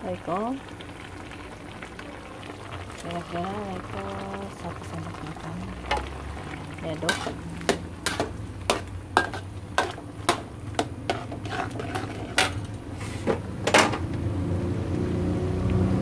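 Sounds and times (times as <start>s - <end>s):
spatula scraping a wok: 6.9s - 13.5s.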